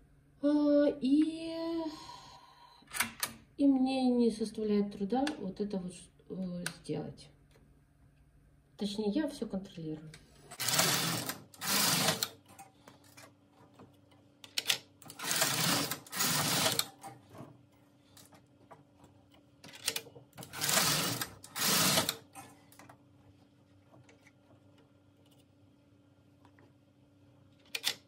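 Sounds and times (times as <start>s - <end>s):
knitting machine carriage rattling: 10.5s - 13.3s, 14.6s - 17.5s, 19.7s - 22.6s.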